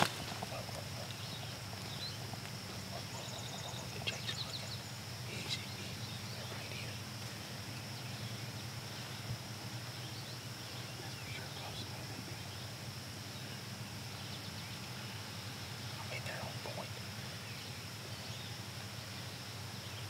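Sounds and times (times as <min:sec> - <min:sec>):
bird chirps: 0:00.0 - 0:20.0
steady high-pitched hum: 0:00.0 - 0:20.0.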